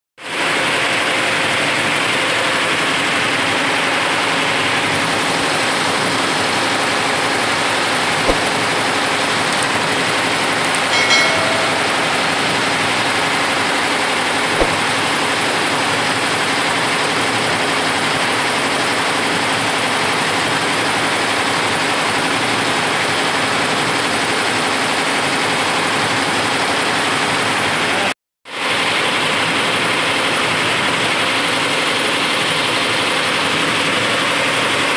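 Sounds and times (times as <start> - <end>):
short high beep: 10.9 - 12.6.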